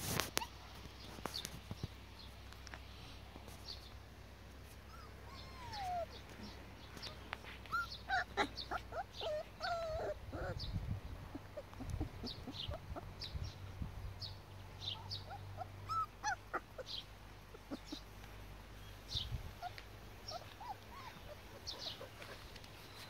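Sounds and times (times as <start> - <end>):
puppies whimpering and yipping: 4.8 - 13.3, 14.9 - 18.1, 19.1 - 23.0.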